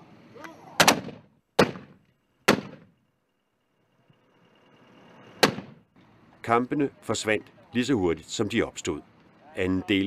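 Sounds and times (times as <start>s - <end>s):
mortar firing: 0.8s - 2.9s, 5.4s - 5.8s.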